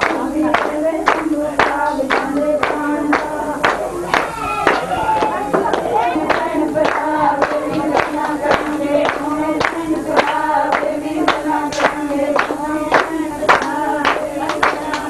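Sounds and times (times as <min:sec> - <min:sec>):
hand clapping: 0:00.0 - 0:15.0
voices singing: 0:00.0 - 0:15.0.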